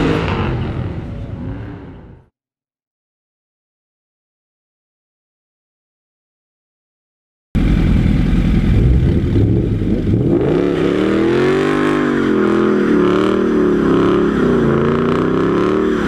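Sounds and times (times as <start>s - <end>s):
car engine revving: 0.0s - 2.3s, 7.6s - 16.0s.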